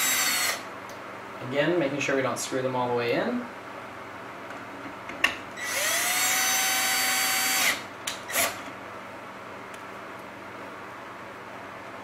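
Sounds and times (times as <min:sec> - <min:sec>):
cordless drill whining: 0:00.0 - 0:00.6, 0:05.6 - 0:08.6
drill click: 0:05.6 - 0:08.6.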